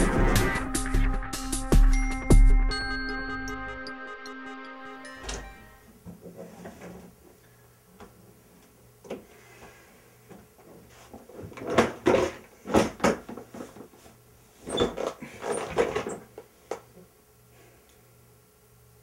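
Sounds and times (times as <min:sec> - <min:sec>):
door clicking shut: 0:05.2 - 0:05.8
knocks shuffles and rustles: 0:05.4 - 0:07.4, 0:08.0 - 0:17.0.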